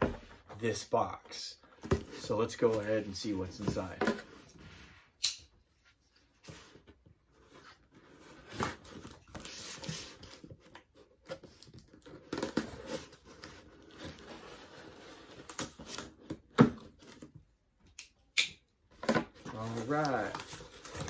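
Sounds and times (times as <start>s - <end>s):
tape and cardboard crinkling: 6.1s - 17.4s, 19.0s - 21.0s.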